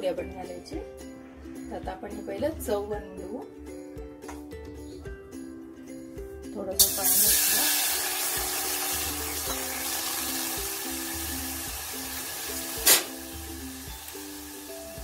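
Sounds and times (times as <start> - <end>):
background music with beat: 0.8 - 6.6, 7.4 - 15.0
water sizzling in hot pan: 6.8 - 15.0.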